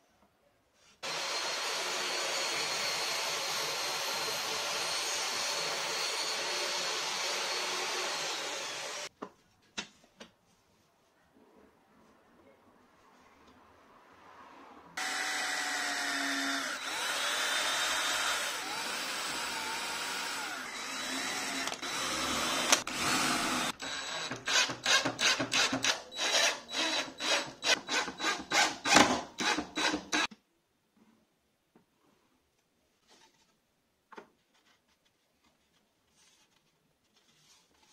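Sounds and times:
power tool motor running: 1.0s - 9.1s, 15.0s - 24.0s.

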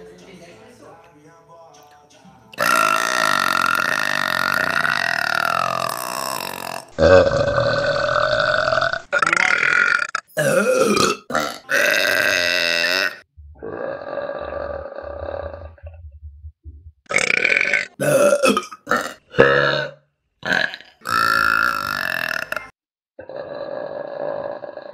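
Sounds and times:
women burping: 2.6s - 13.8s, 17.1s - 22.8s.

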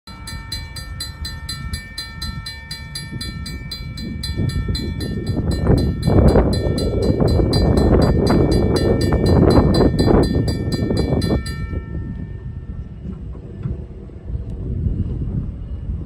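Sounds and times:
railroad crossing bell ringing: 0.1s - 13.1s
low rumbling: 0.1s - 16.0s.

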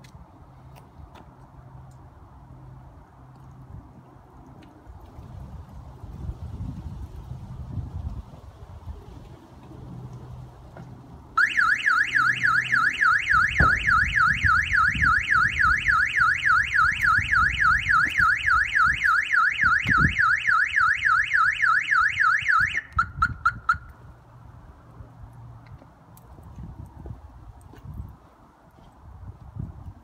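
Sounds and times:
car alarm siren warble: 11.4s - 24.0s.

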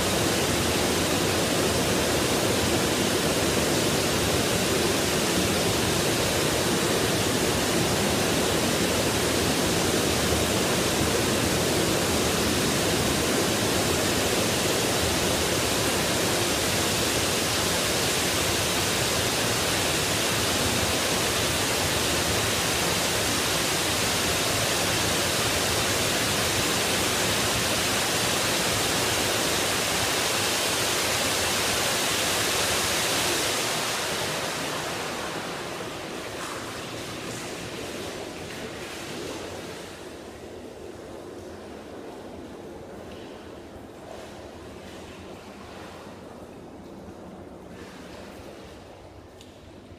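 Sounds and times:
water splashing into pool: 28.9s - 49.9s.

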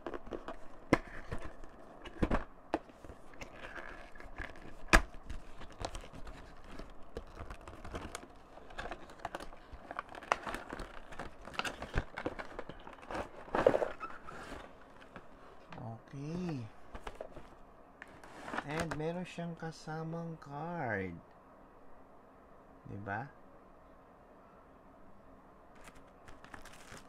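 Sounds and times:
plastic wrapping crinkling: 0.0s - 15.7s, 25.8s - 27.0s.

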